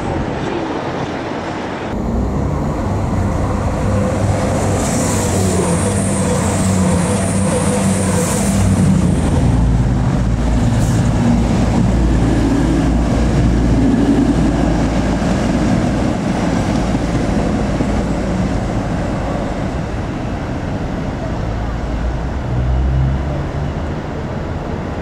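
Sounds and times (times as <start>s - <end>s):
train engine drone: 0.0s - 25.0s
wheels rumbling on rails: 0.0s - 25.0s.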